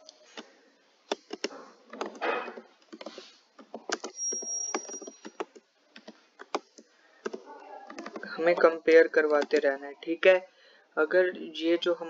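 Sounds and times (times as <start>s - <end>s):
keyboard typing clicks: 1.1s - 9.7s.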